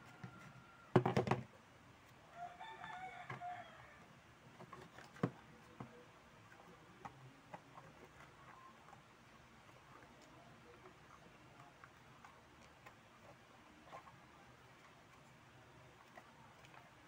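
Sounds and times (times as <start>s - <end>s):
rooster crowing: 0.0s - 1.0s, 2.3s - 4.0s.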